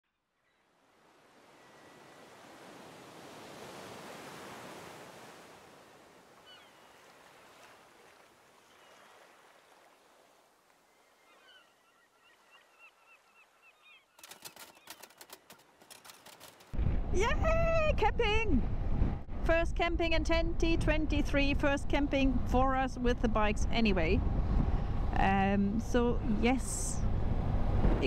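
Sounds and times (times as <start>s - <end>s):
sharp clicks: 14.2s - 16.8s.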